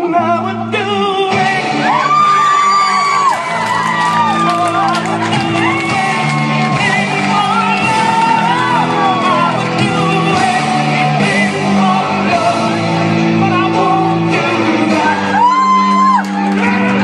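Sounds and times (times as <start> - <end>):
loud music with singing voice: 0.0 - 17.0
people shouting and whooping: 1.6 - 10.0, 15.0 - 17.0.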